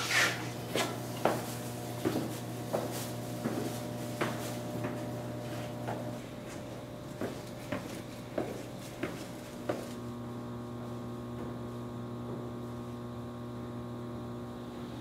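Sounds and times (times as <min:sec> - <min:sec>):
steady electrical hum: 0:00.0 - 0:15.0
footsteps on stairs: 0:00.6 - 0:10.0.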